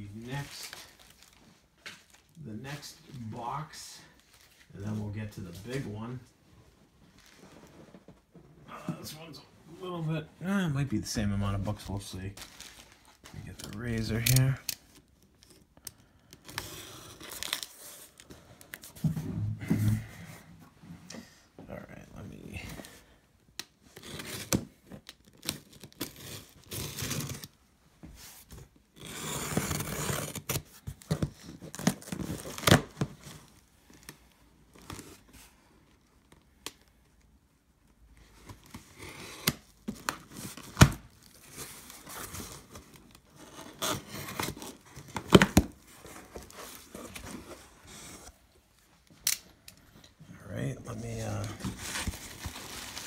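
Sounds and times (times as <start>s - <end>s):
packing tape being slit and torn: 14.1s - 17.8s, 23.6s - 27.6s, 29.0s - 30.7s
cardboard flaps rustling and tearing: 51.1s - 53.0s.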